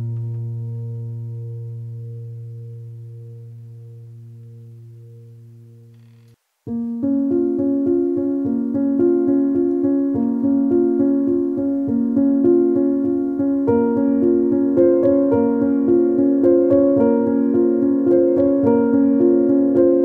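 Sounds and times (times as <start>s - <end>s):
keyboard tune with repeated notes: 6.7s - 20.0s.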